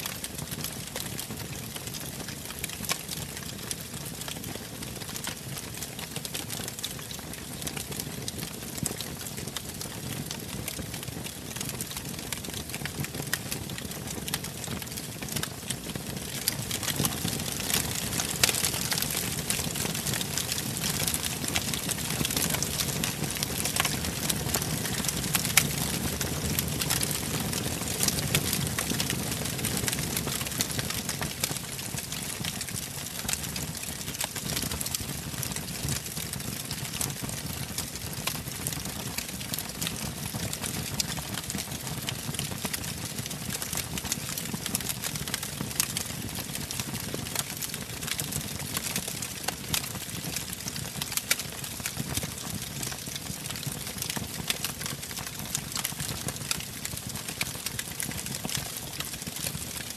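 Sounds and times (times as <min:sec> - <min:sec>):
logs crackling and popping: 0:00.1 - 0:59.9.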